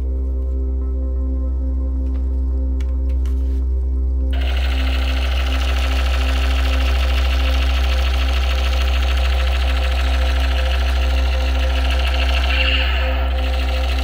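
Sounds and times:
deep steady hum: 0:00.0 - 0:14.0
toy gun electronic rattle: 0:04.4 - 0:14.0.

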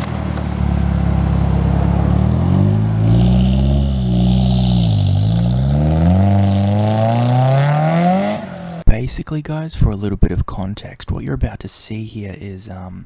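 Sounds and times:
car engine revving: 0:00.0 - 0:08.9.

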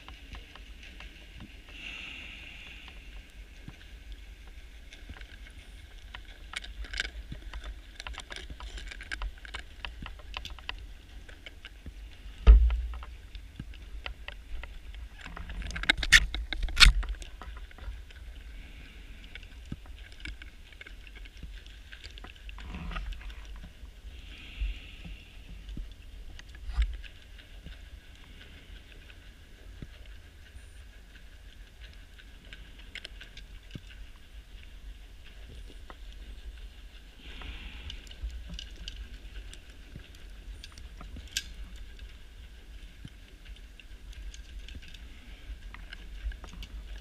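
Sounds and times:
low underwater rumble and hiss: 0:00.0 - 0:47.0
scuba gear clicks and crackles: 0:00.0 - 0:47.0.

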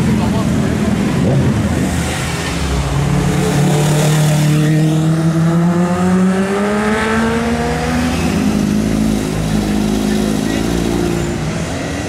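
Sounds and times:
motorcycle engine accelerating: 0:03.1 - 0:11.2.

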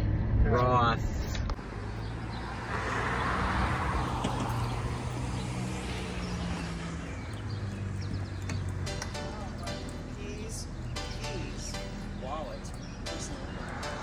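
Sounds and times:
vehicle passing: 0:01.6 - 0:14.0.

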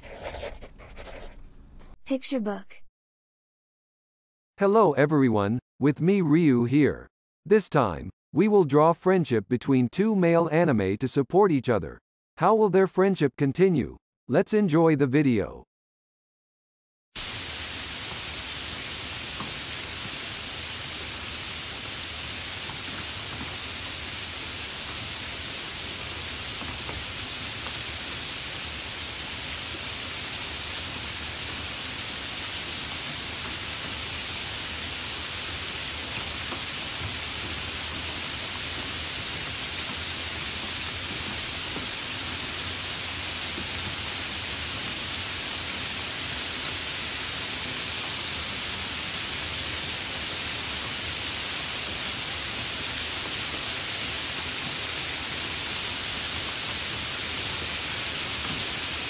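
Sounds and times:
steady hiss: 0:17.2 - 0:59.0.

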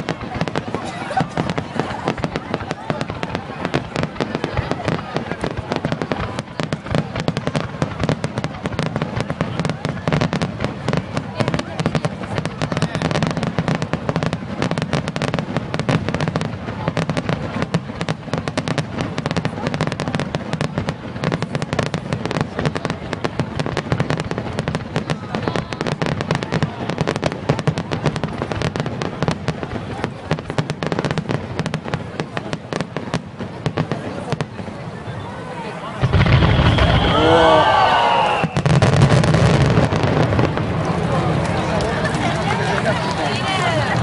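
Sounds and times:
fireworks bangs and crackles: 0:00.0 - 0:44.0.

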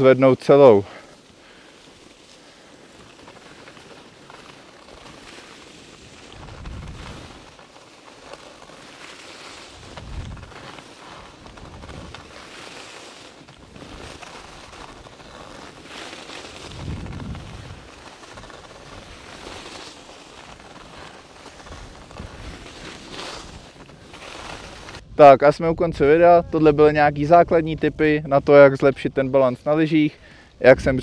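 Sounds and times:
skis scraping over snow: 0:00.0 - 0:31.0
wind buffeting microphone: 0:06.4 - 0:07.5, 0:09.8 - 0:10.6, 0:16.6 - 0:17.9.

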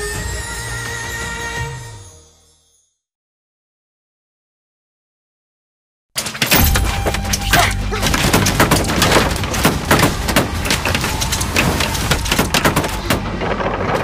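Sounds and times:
sharp wooden knocks and cracks: 0:06.2 - 0:14.0.

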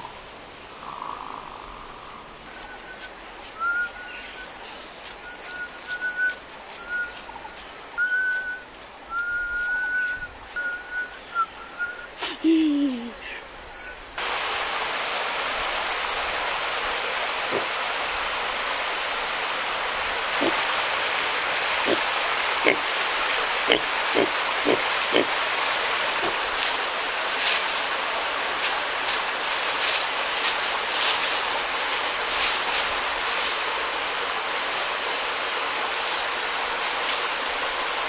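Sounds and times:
jungle insects droning: 0:00.0 - 0:38.0
waterfall rushing: 0:14.2 - 0:38.0.

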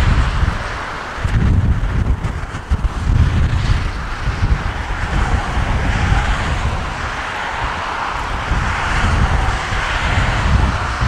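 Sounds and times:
jet airliner passing overhead: 0:00.0 - 0:11.0
wind rumble on microphone: 0:00.0 - 0:11.0.

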